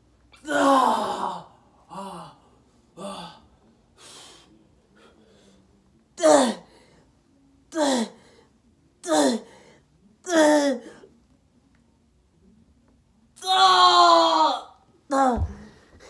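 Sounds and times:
man straining cries: 0.4 - 2.3, 13.4 - 15.3.

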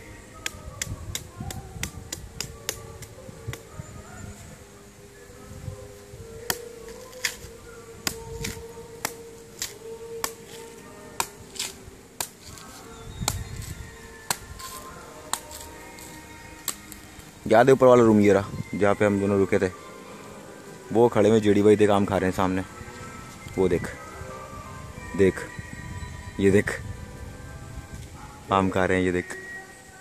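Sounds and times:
machete chopping coconut husk: 0.4 - 3.6, 6.4 - 17.1.

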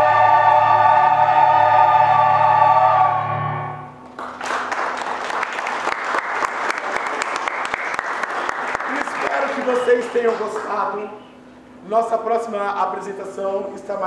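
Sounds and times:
choir singing sustained chord: 0.0 - 4.0
audience applause: 4.0 - 11.0.

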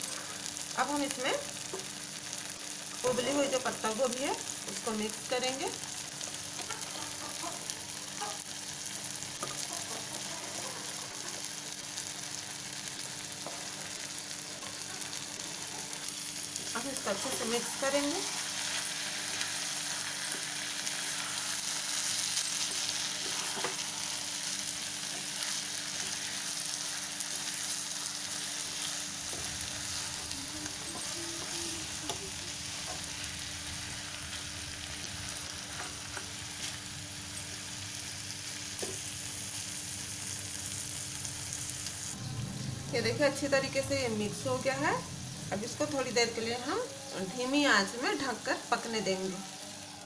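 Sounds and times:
vegetables sizzling in a frying pan: 0.0 - 50.0.

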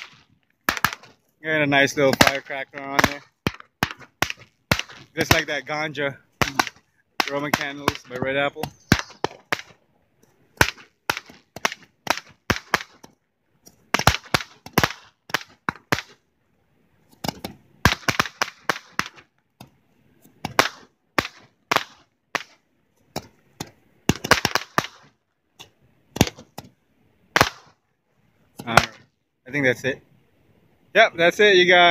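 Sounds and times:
roman candles popping: 6.4 - 9.8.

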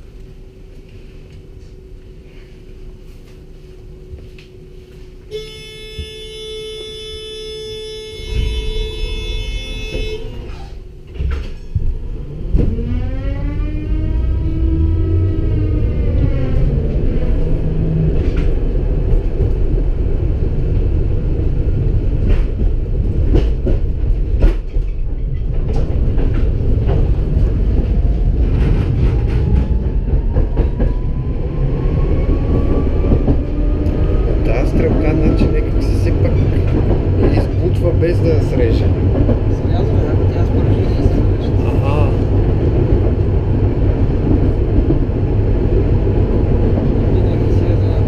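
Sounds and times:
tram motor whine: 0.0 - 22.9
wheels rumbling on rail: 0.0 - 48.0.

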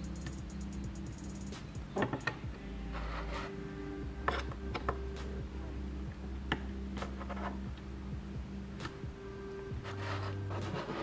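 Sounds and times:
chisel scraping plastic: 7.0 - 7.6, 9.8 - 11.0.

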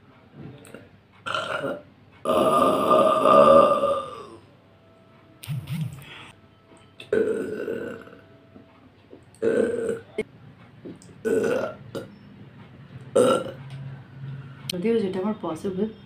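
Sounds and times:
woman burping: 0.7 - 4.4, 7.1 - 8.2, 9.4 - 10.2, 11.2 - 12.1, 13.2 - 13.6.

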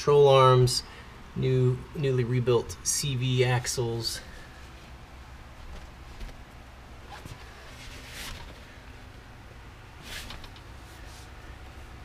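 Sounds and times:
soft rustling: 4.4 - 9.2, 10.0 - 11.6.

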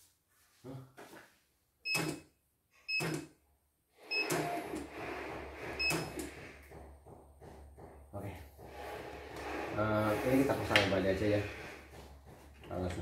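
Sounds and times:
embroidery machine beeps: 4.1 - 4.6
machine drive whirring: 8.5 - 13.0.

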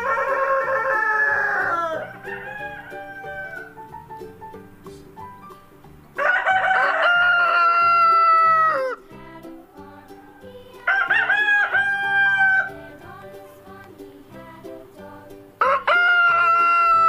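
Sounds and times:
rooster crowing: 0.0 - 4.0, 6.2 - 9.1, 9.7 - 13.0, 15.6 - 17.0
quiet music with steady beat: 1.7 - 6.3.

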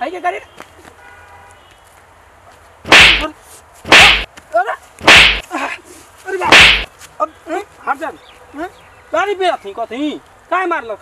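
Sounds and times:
whip-crack sound effects: 2.9 - 3.3, 3.9 - 4.3, 5.0 - 5.4, 6.5 - 6.9.

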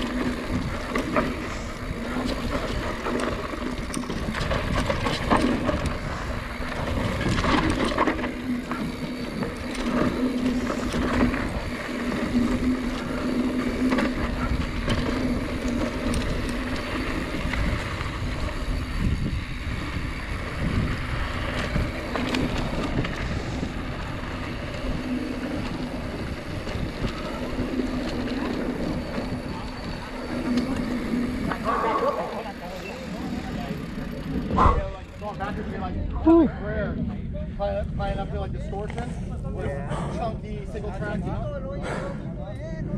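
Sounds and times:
bike knocks and rattles: 0.0 - 35.8
bike tyres on dirt: 0.0 - 41.4
wind on microphone: 10.5 - 32.3, 34.3 - 35.0.

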